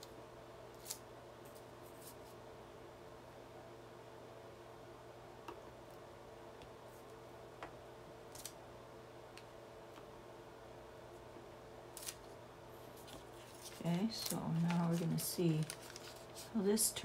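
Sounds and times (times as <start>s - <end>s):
steady low hum: 0.0s - 17.0s
paper receipts rustling: 12.0s - 17.0s.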